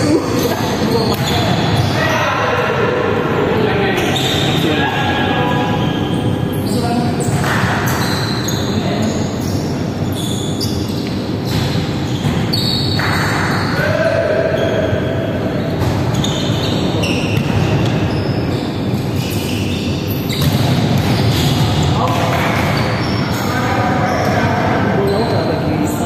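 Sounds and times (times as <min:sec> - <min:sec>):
shoes squeaking on court: 0:05.5 - 0:13.8, 0:14.5 - 0:26.0.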